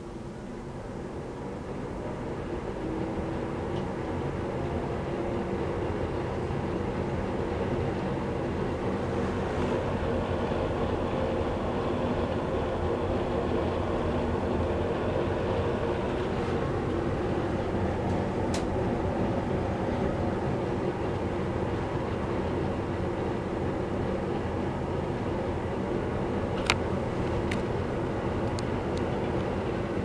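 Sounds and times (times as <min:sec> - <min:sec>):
exhaust fan motor humming: 0:00.0 - 0:30.0.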